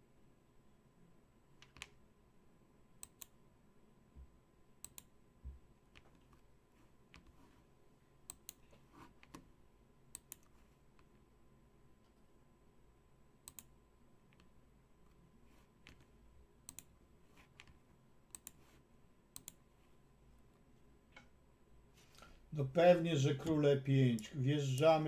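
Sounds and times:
computer clicks: 0:03.0 - 0:03.4, 0:04.8 - 0:05.1, 0:08.2 - 0:09.4, 0:10.1 - 0:10.5, 0:13.4 - 0:13.7, 0:15.8 - 0:16.9, 0:17.5 - 0:18.6, 0:19.3 - 0:19.6.

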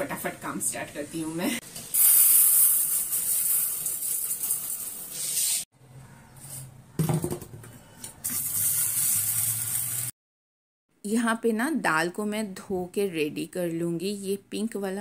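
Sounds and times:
lentils pouring into steel bowl: 0:02.0 - 0:05.1, 0:08.3 - 0:10.1.

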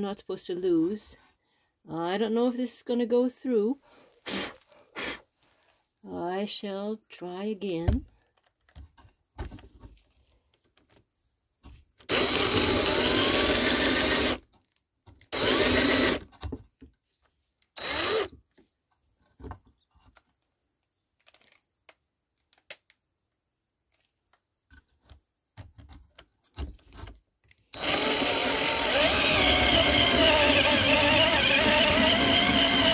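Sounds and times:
drill with hole saw cutting wood: 0:12.1 - 0:14.4, 0:15.3 - 0:16.2, 0:17.8 - 0:18.4, 0:27.7 - 0:32.9.

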